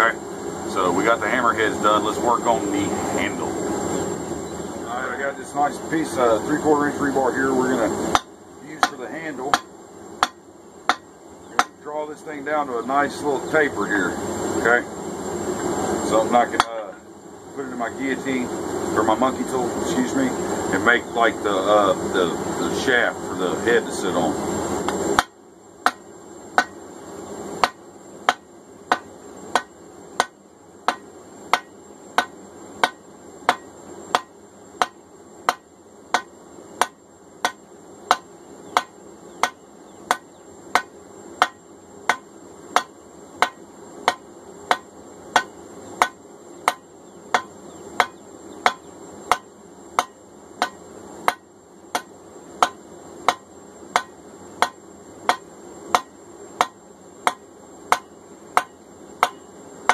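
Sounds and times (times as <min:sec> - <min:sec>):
hammer striking hot metal on anvil: 0:08.1 - 0:11.8, 0:24.9 - 0:26.0, 0:26.6 - 0:26.8, 0:27.6 - 0:59.9.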